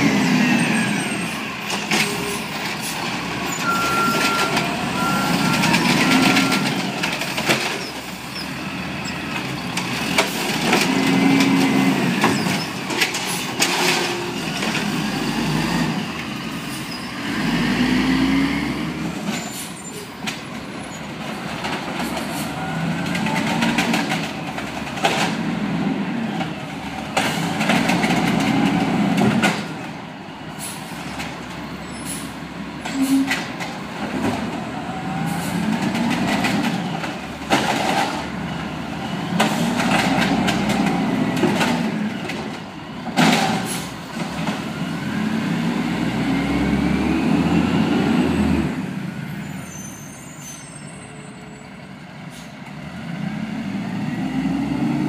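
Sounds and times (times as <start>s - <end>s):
garbage truck engine revving: 0.0s - 19.4s, 33.5s - 49.4s, 52.6s - 55.0s
carts clanking and banging: 1.0s - 15.0s, 19.2s - 25.6s, 26.4s - 30.0s, 35.4s - 44.7s.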